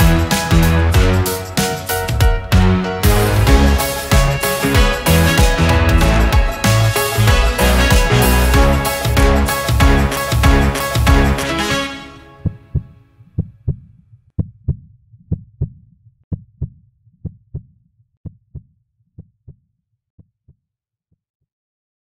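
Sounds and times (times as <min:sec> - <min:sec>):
soundtrack music: 0:00.0 - 0:12.9.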